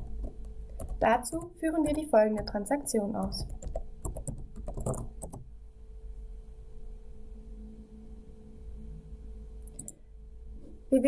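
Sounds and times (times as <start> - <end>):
faint constant tone: 0.0 - 11.0
low electrical hum: 0.0 - 11.0
computer keyboard keystrokes: 0.1 - 2.6, 3.2 - 5.4, 9.7 - 10.0.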